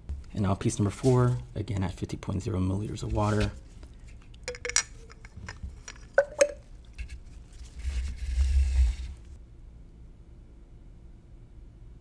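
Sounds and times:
plastic clicking against glass cylinder: 0:04.4 - 0:06.6
sharp clink on cylinder: 0:04.5 - 0:06.6.

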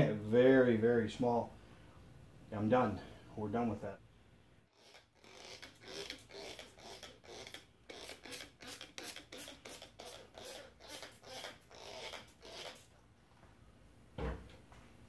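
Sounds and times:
spray bottle squirting: 0:05.3 - 0:12.9.

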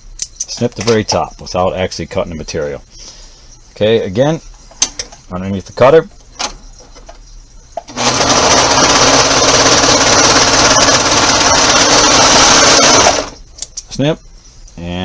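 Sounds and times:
serger stitching fabric: 0:07.9 - 0:13.4.

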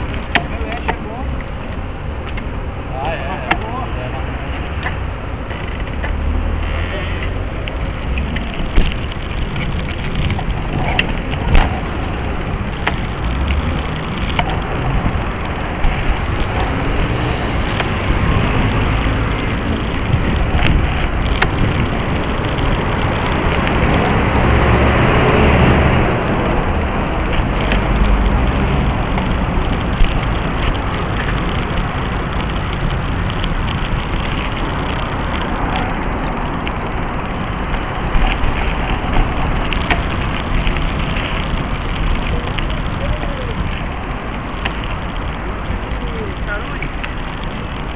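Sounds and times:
bike tyres rumbling on pavement: 0:00.0 - 0:47.9.

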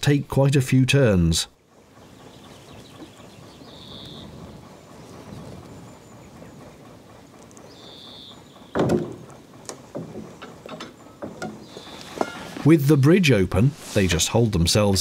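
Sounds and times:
winding gear rumbling: 0:00.0 - 0:15.0
loud mechanical clunk: 0:08.2 - 0:12.6.

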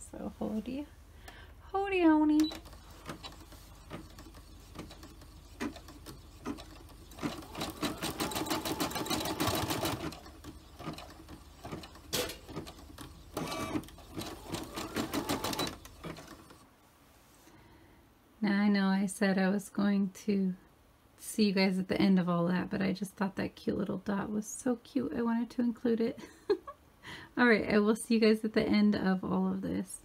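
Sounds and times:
embroidery machine needle strokes: 0:02.4 - 0:16.6.

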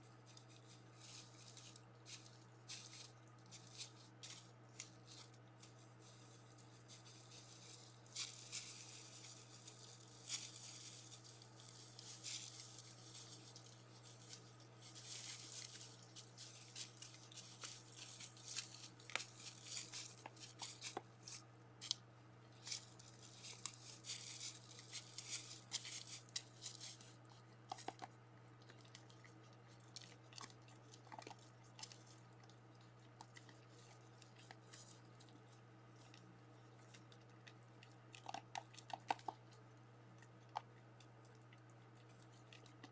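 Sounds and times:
low electrical hum: 0:00.0 - 0:42.9
crunching in dry leaves: 0:00.2 - 0:27.9.

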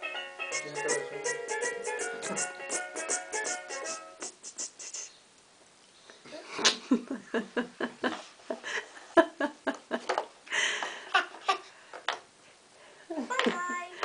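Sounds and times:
breathy hiss: 0:00.6 - 0:05.2.

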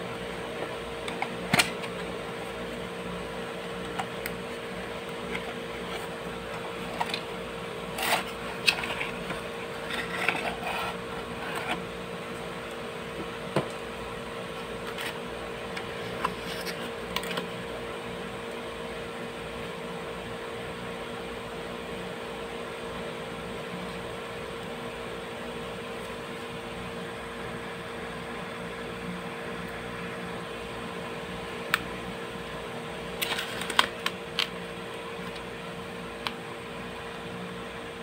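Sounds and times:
steady background hum: 0:00.0 - 0:38.0
cardboard clicks and rustling: 0:33.2 - 0:34.5.

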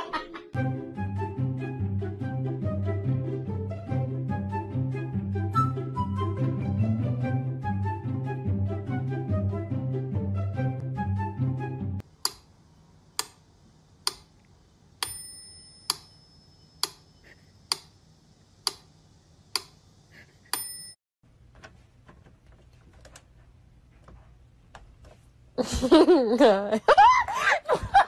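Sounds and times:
metronome bell ringing: 0:15.0 - 0:16.8, 0:20.5 - 0:21.0.

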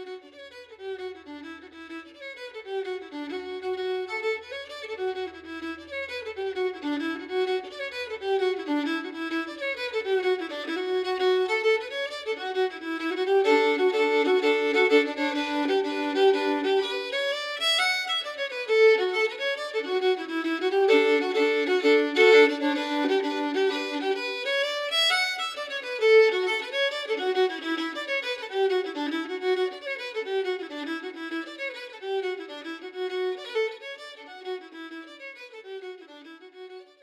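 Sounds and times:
lively fiddle melody: 0:00.0 - 0:37.0.

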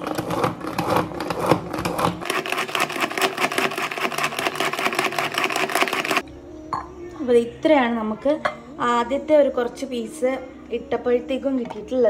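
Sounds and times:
food chopper blades whirring: 0:00.0 - 0:06.2.

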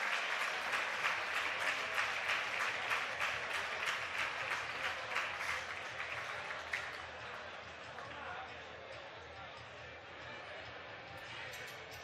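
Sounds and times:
crowd applauding: 0:00.0 - 0:08.4.

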